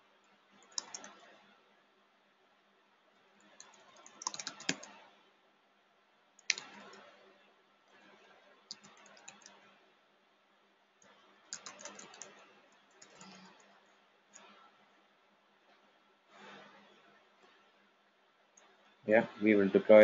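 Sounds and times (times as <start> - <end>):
typing on computer keyboard: 0.6 - 1.4, 3.4 - 5.1, 6.4 - 7.2, 8.7 - 9.7, 11.5 - 14.6.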